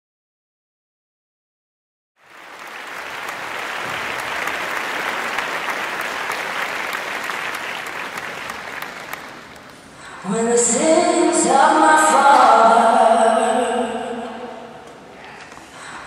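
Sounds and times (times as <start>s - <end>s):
audience applauding: 2.2s - 10.0s.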